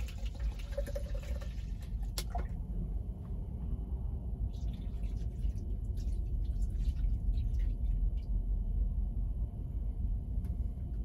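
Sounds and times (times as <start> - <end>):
water splashing and trickling: 0.0 - 2.7, 4.5 - 8.3
steady low rumble: 0.0 - 11.0.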